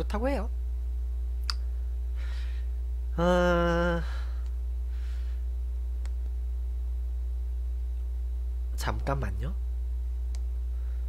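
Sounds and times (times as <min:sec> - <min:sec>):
low electrical hum: 0:00.0 - 0:11.0
small click: 0:01.4 - 0:01.6, 0:06.0 - 0:06.4, 0:10.3 - 0:10.5
quiet breaths: 0:01.6 - 0:02.8, 0:03.9 - 0:05.7, 0:10.6 - 0:11.0
man humming: 0:03.1 - 0:04.5.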